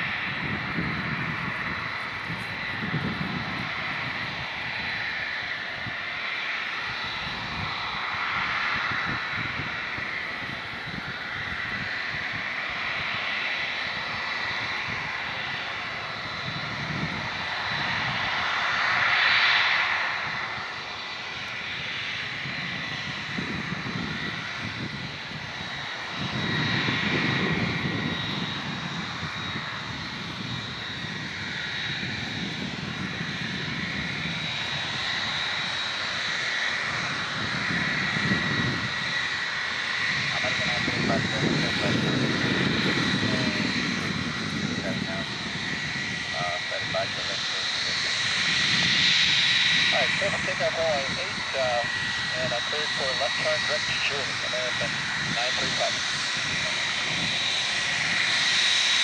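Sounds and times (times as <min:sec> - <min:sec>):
jet engine whine: 0:00.0 - 0:59.0.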